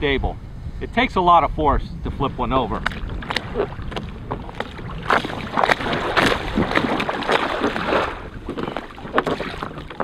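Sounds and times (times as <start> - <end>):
water splashing against kayak hull: 2.4 - 10.0.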